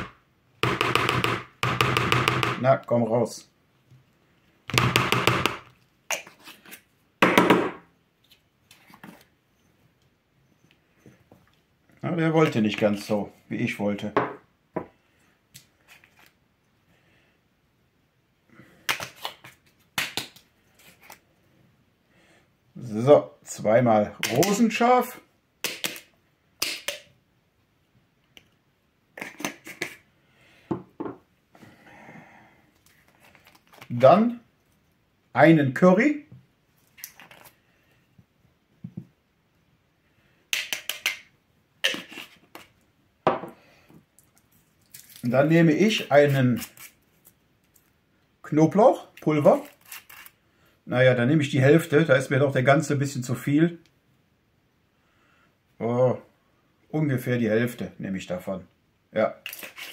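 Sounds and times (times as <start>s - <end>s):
paper spice packets rustling: 32.9s - 34.0s.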